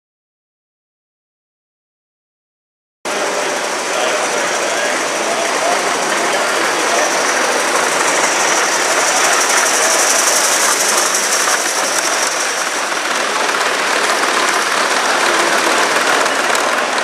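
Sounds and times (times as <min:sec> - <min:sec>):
steam model train hissing: 0:03.1 - 0:17.0.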